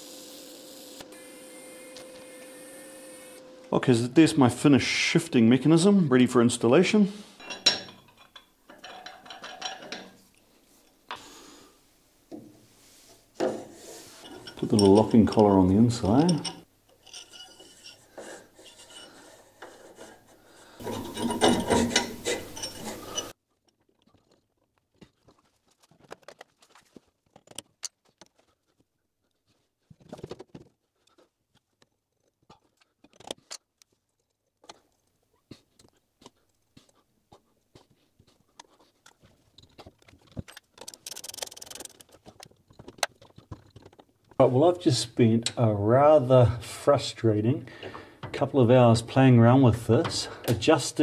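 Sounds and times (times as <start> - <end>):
metal shaft scraping housing: 13.5 - 23.3.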